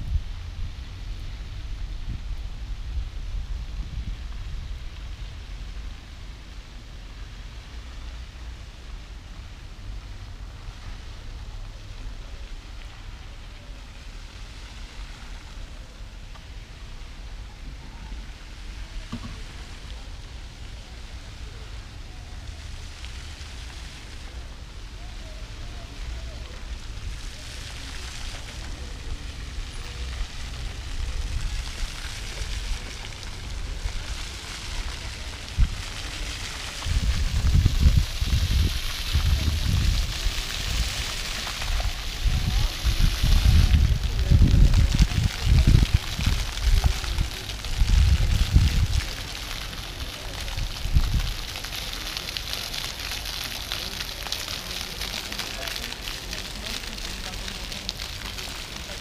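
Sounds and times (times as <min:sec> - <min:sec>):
wind buffeting microphone: 0:00.0 - 0:05.7, 0:30.1 - 0:49.7, 0:50.3 - 0:51.8
fountain water splashing on paving: 0:00.0 - 0:59.0.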